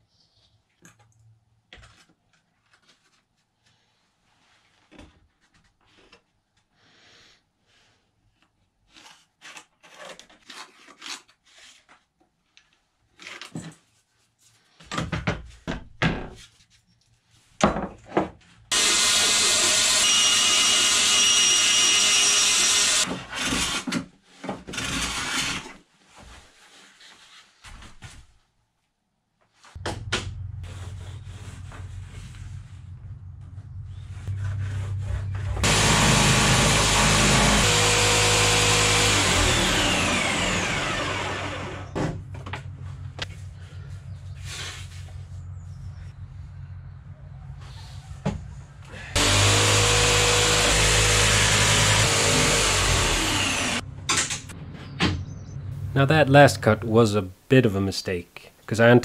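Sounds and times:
bandsaw cutting plywood: 18.7s - 24.0s, 24.7s - 25.8s, 35.3s - 42.1s, 49.1s - 54.5s.

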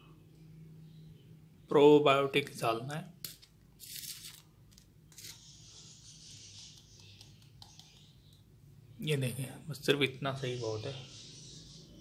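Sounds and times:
plastic bottle cap scraping: 3.2s - 5.5s.

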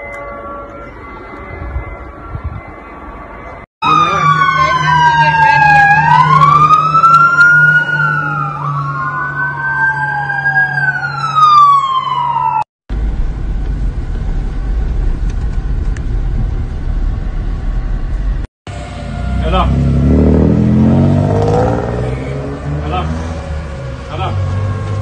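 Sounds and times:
fire engine siren wailing: 0.0s - 12.7s, 18.1s - 25.0s
car engine and road rumble: 12.9s - 25.0s
low engine drone: 12.9s - 25.0s.

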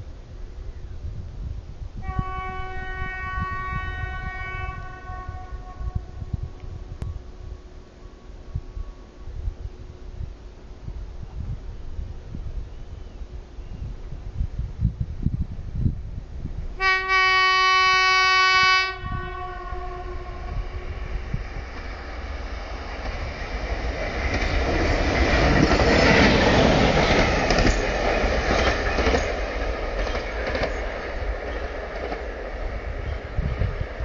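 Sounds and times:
locomotive horn blast: 2.0s - 6.3s, 16.8s - 21.0s
train wheels clattering on track: 21.6s - 34.0s.

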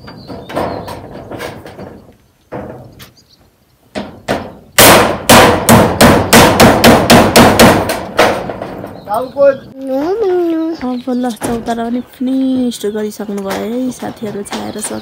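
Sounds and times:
hammer striking metal roofing: 0.0s - 3.1s, 3.9s - 9.2s.

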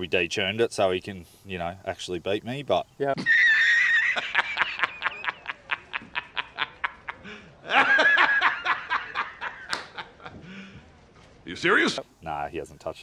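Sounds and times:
man laughing: 3.2s - 10.5s.

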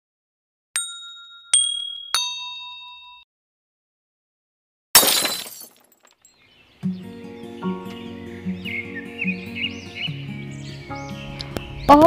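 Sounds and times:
bright chime dings: 0.8s - 3.3s
glass shattering sound effect: 5.0s - 6.3s.

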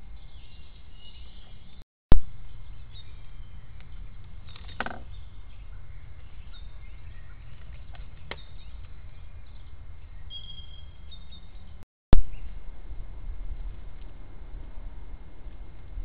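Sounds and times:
low steady rumble: 0.0s - 16.0s
faint bird chirps: 0.2s - 12.6s.

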